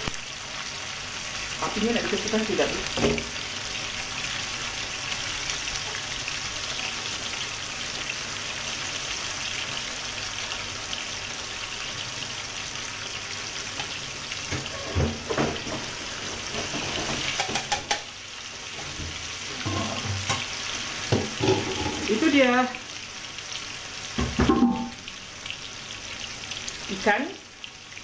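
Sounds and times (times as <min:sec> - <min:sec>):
fish sizzling in hot oil: 0:00.0 - 0:28.0.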